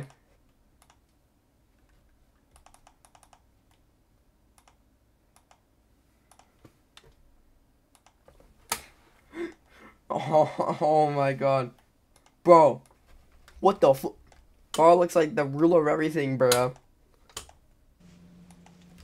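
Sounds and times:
mouse clicks: 4.6s - 4.8s.

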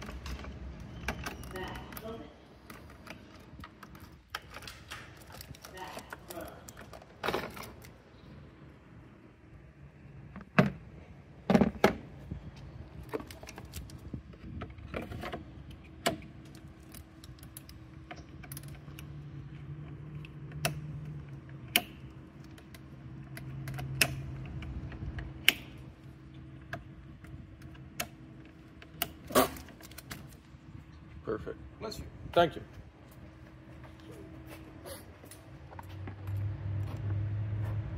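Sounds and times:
plastic connectors clicking and rattling: 1.2s - 8.0s.

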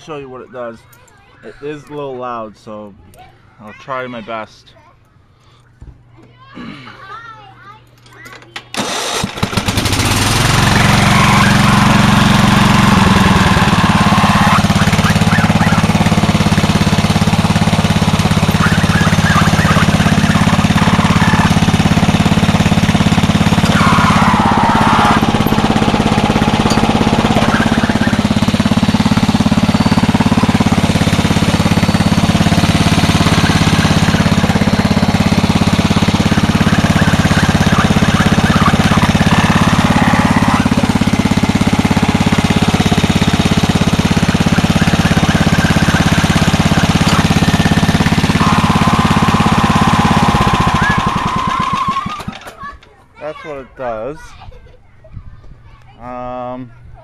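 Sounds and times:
lawn mower engine running: 8.7s - 52.8s.

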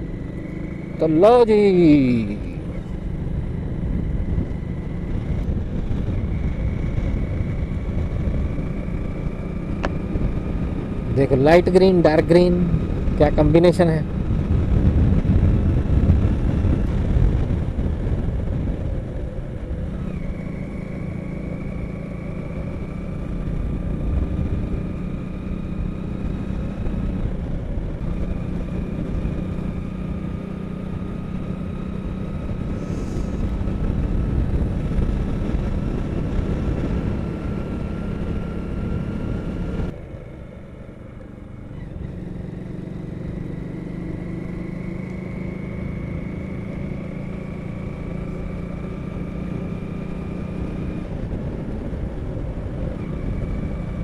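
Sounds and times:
motorcycle engine riding: 0.0s - 54.0s
wind rush on microphone: 2.0s - 40.0s, 50.0s - 54.0s.

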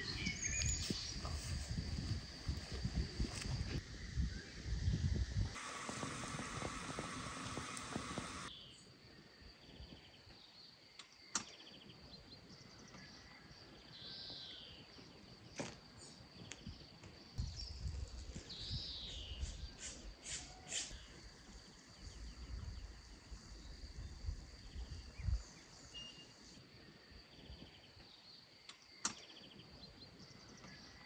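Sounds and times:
bird chirps: 0.0s - 1.5s
samovar hissing: 0.0s - 8.5s, 19.2s - 21.2s
insect drone: 0.0s - 11.9s, 12.5s - 31.0s.

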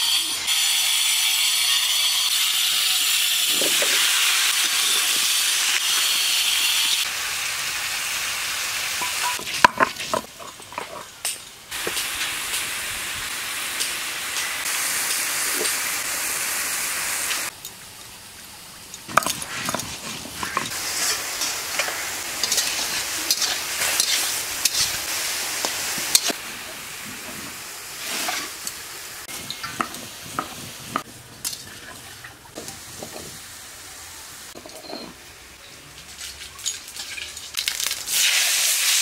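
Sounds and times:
food sizzling in hot oil: 0.0s - 35.6s, 36.6s - 39.0s
spatula scraping pan: 19.1s - 28.6s.

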